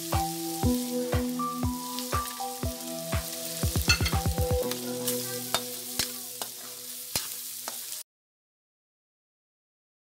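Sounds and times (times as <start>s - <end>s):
background music with held notes: 0.0s - 7.7s
meat sizzling in a wok: 0.0s - 8.1s
drum hits: 3.6s - 4.6s
metal spatula scraping: 5.0s - 8.0s.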